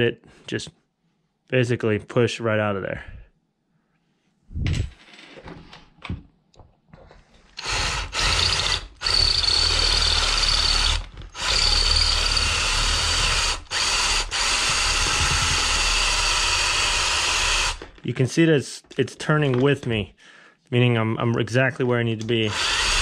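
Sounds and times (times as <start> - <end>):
cordless drill drilling: 7.6 - 18.0, 22.5 - 23.0
handling clicks and knocks: 18.8 - 20.0.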